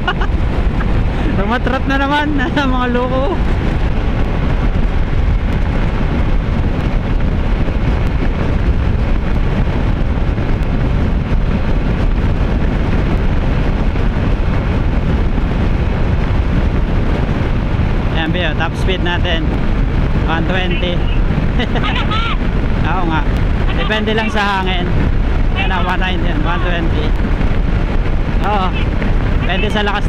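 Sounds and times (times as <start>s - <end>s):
scooter road noise: 0.0s - 30.0s
wind buffeting microphone: 0.0s - 30.0s.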